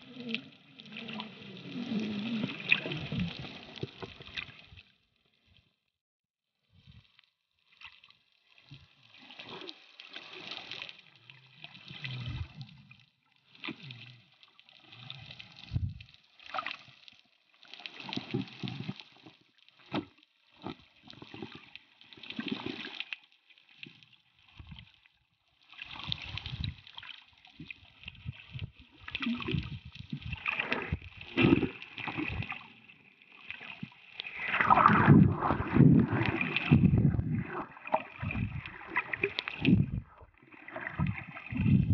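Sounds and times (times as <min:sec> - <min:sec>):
water sloshing and gurgling underwater: 0:00.0 - 0:41.9.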